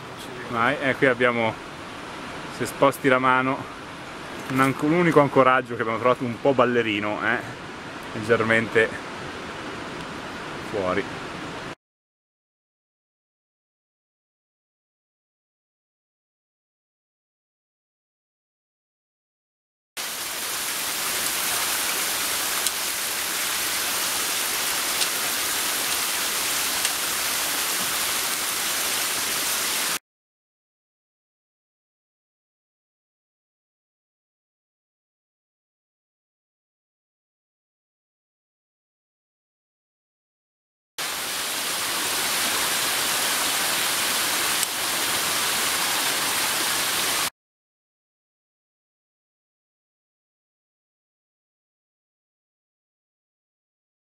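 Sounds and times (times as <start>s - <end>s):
small waterfall splashing: 20.0s - 30.0s, 41.0s - 47.3s
stream rushing over rocks: 20.0s - 30.0s, 41.0s - 47.3s.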